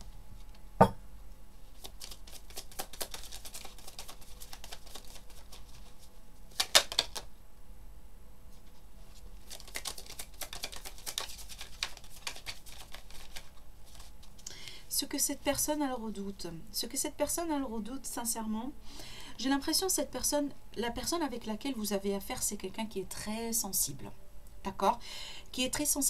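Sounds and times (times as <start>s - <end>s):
cards being shuffled: 1.6s - 7.3s, 8.6s - 14.4s.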